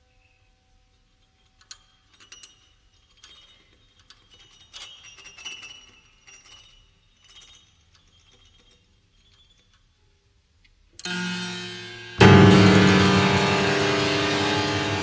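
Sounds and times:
sparse high piano notes: 0:11.1 - 0:15.0.

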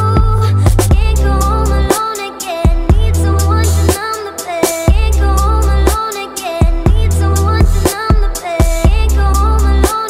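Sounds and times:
deep bass line: 0:00.0 - 0:01.9, 0:02.8 - 0:04.0, 0:04.9 - 0:06.0, 0:06.7 - 0:07.9, 0:08.8 - 0:09.9.

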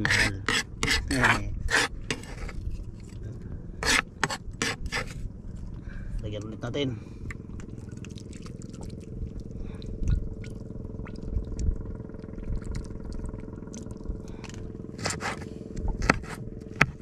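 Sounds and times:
low mechanical hum: 0:00.0 - 0:17.0
liquid pouring and trickling: 0:07.4 - 0:14.7
knife chopping on plastic board: 0:16.0 - 0:17.0.

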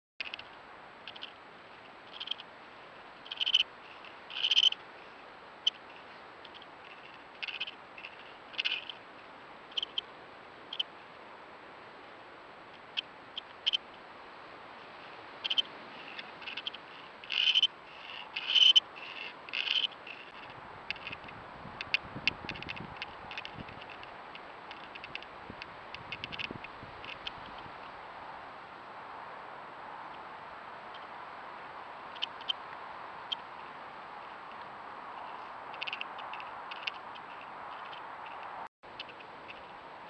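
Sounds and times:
high-pitched squeaking calls: 0:02.1 - 0:02.4, 0:03.2 - 0:04.8, 0:05.6 - 0:09.0, 0:09.7 - 0:10.1, 0:15.4 - 0:21.2.

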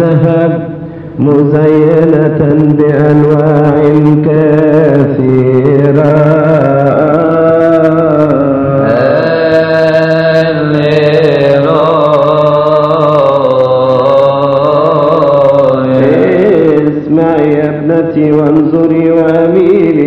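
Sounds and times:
low held drone note: 0:00.0 - 0:20.0
voices chanting melody: 0:08.6 - 0:13.1, 0:14.1 - 0:17.6.

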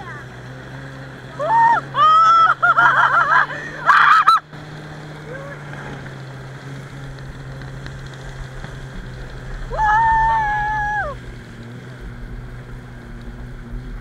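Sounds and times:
snowmobile engine running: 0:00.0 - 0:14.0
person yelling: 0:01.4 - 0:02.6, 0:03.5 - 0:04.4, 0:09.7 - 0:11.2.

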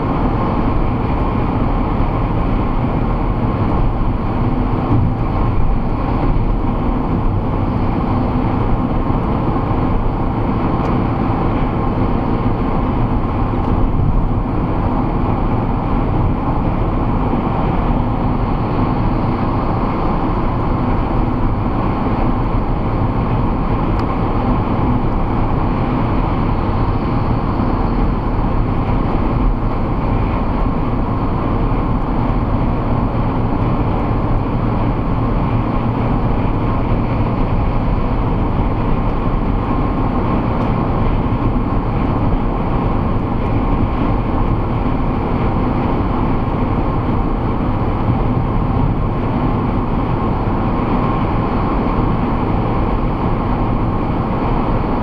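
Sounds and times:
car road and engine noise: 0:00.0 - 0:55.0.

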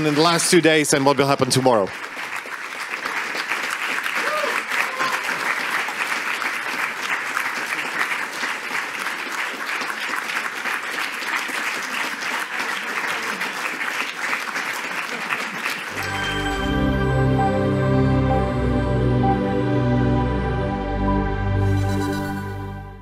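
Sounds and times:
audience applauding: 0:00.0 - 0:17.7.

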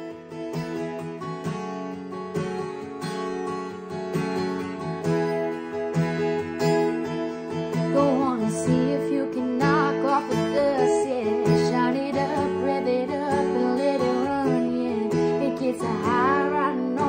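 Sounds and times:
acoustic guitar strumming: 0:00.0 - 0:17.0
woman singing: 0:07.7 - 0:17.0.

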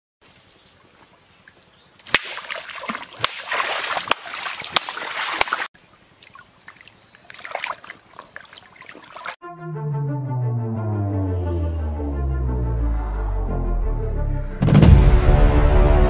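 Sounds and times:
water splashing in river: 0:02.0 - 0:09.4.

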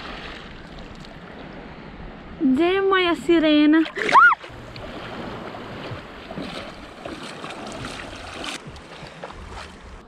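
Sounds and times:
sea water sloshing and lapping: 0:00.0 - 0:02.4, 0:03.5 - 0:10.0
person wading through water: 0:03.8 - 0:10.0.

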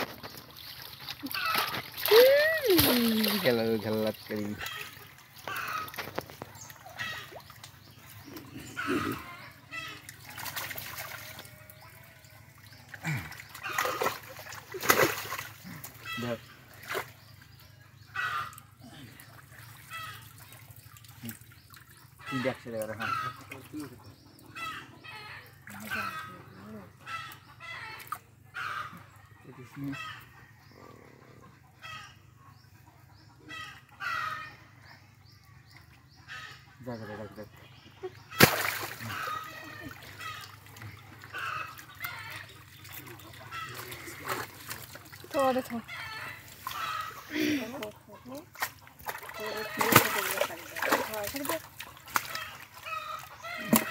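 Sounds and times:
fish splashing in a net: 0:00.0 - 0:03.8, 0:10.2 - 0:11.9, 0:13.0 - 0:15.8, 0:38.3 - 0:45.3, 0:48.5 - 0:53.9
water splashing and dripping: 0:00.0 - 0:08.5, 0:09.8 - 0:17.4, 0:19.2 - 0:23.7, 0:38.3 - 0:47.0, 0:47.6 - 0:53.9
fowl calling: 0:01.2 - 0:03.6, 0:04.3 - 0:07.5, 0:08.5 - 0:12.1, 0:18.0 - 0:19.1, 0:22.2 - 0:23.9, 0:24.5 - 0:29.1, 0:33.4 - 0:34.8, 0:36.2 - 0:53.9
voices: 0:01.2 - 0:04.9, 0:25.6 - 0:27.2, 0:42.4 - 0:52.6.

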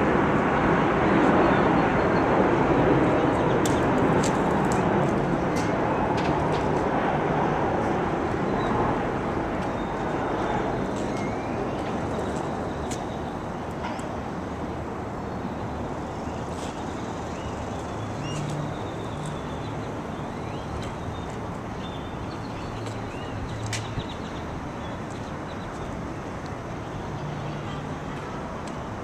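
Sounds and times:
traffic rumble and hiss: 0:00.0 - 0:29.0.

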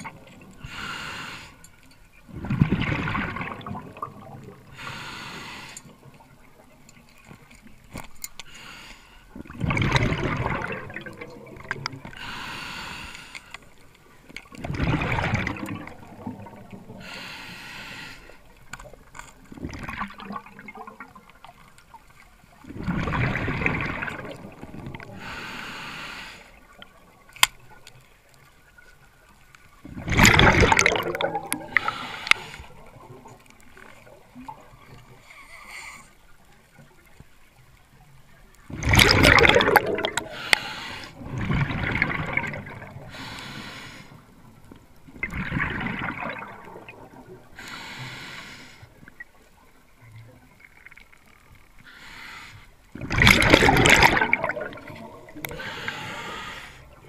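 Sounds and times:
regulator hissing inhale: 0:00.6 - 0:01.7, 0:04.7 - 0:05.9, 0:08.4 - 0:09.3, 0:12.2 - 0:13.6, 0:17.0 - 0:18.5, 0:25.2 - 0:26.6, 0:31.7 - 0:32.9, 0:40.2 - 0:41.2, 0:43.1 - 0:44.3, 0:47.6 - 0:49.0, 0:51.8 - 0:52.8, 0:55.4 - 0:57.0
exhaled bubbles underwater: 0:02.3 - 0:04.9, 0:09.3 - 0:12.4, 0:14.2 - 0:17.2, 0:18.4 - 0:25.5, 0:29.8 - 0:35.2, 0:38.6 - 0:43.5, 0:44.2 - 0:47.8, 0:52.9 - 0:57.0.

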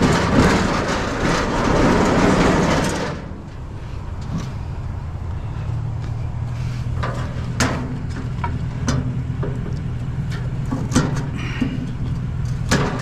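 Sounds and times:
truck engine idling: 0:00.0 - 0:13.0
metallic clanks and clicks: 0:07.0 - 0:13.0.

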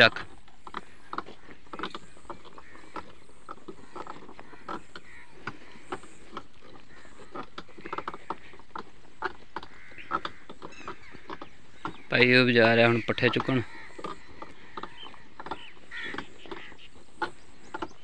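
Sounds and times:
wooden cart creaking and knocking: 0:00.0 - 0:18.0.

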